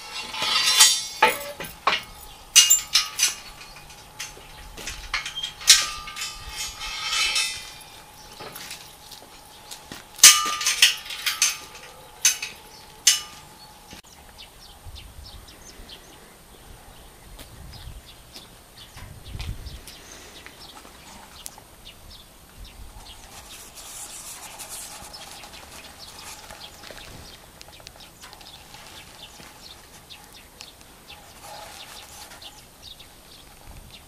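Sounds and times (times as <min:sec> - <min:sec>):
metal chain and forks clanking: 0:00.0 - 0:13.6.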